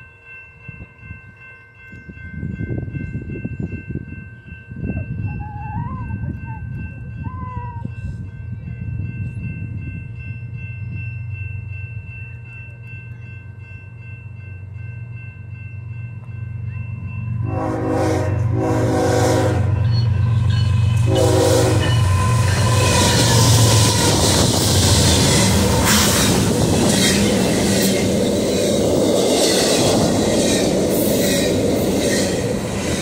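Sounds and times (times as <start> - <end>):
locomotive engine rumbling: 5.2 - 33.0
train wheel noise: 15.8 - 33.0
locomotive air horn: 17.4 - 19.8, 21.0 - 24.3.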